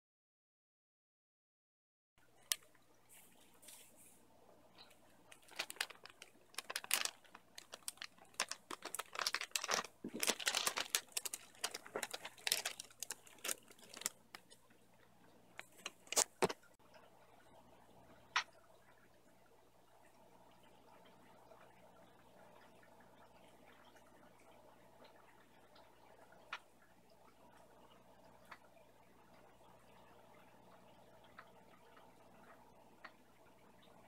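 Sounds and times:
plastic bags crinkling: 0:05.2 - 0:14.6, 0:15.6 - 0:16.6.

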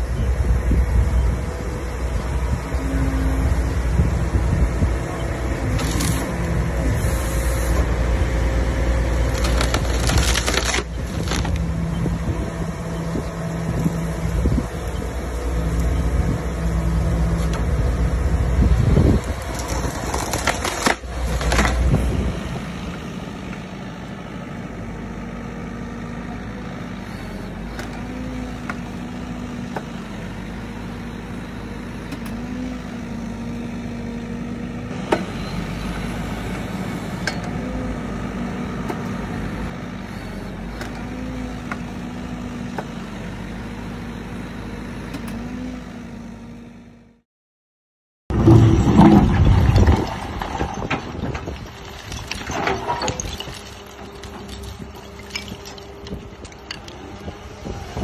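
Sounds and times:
excavator engine hum: 0:00.0 - 0:47.2, 0:48.3 - 0:58.0
heavy machine engine and hydraulics: 0:00.0 - 0:47.2, 0:48.3 - 0:58.0
wood cracking: 0:05.7 - 0:06.5, 0:09.2 - 0:11.7, 0:19.1 - 0:21.9, 0:48.3 - 0:57.3.

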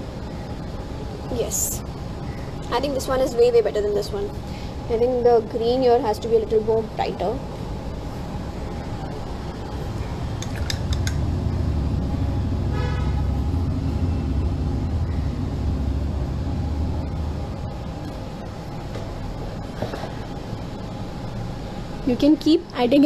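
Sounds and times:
background traffic hum: 0:00.0 - 0:23.0
vehicle rumbling past: 0:08.2 - 0:22.1
car horn toot: 0:12.7 - 0:13.2.

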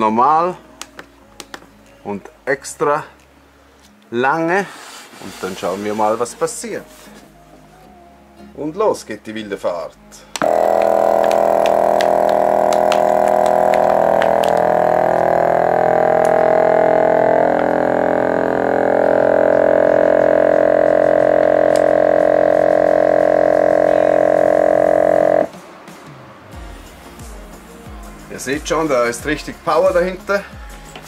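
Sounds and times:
vacuum sealer pump running: 0:10.4 - 0:25.5.

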